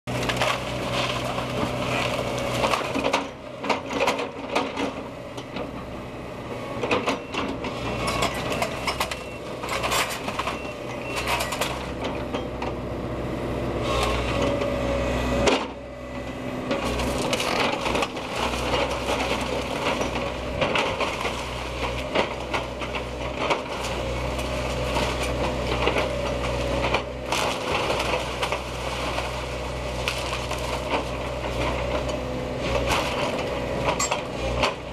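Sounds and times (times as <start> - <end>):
wood cracking and crunching: 0.1 - 3.2, 16.7 - 34.9
excavator engine running: 0.1 - 34.9.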